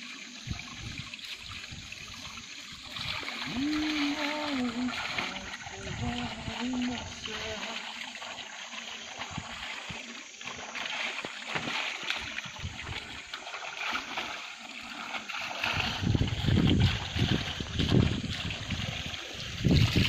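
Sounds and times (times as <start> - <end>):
stream trickling and splashing: 0.0 - 20.0
low rumbling on microphone: 15.8 - 20.0.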